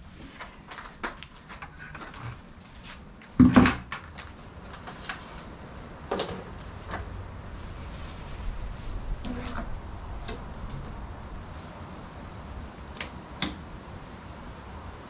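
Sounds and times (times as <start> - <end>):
low steady rumble: 4.1 - 15.0.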